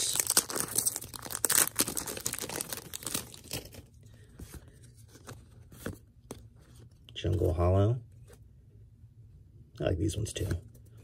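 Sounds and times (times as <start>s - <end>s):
foil wrapper tearing and crinkling: 0.0s - 3.8s.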